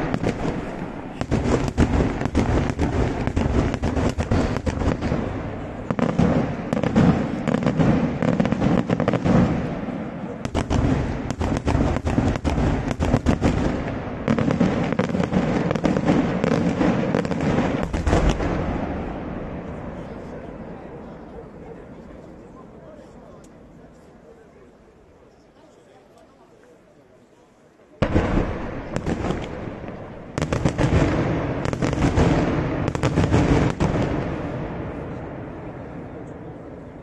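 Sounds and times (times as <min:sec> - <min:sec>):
fireworks bursts and bangs: 0:00.0 - 0:21.7, 0:28.0 - 0:37.0.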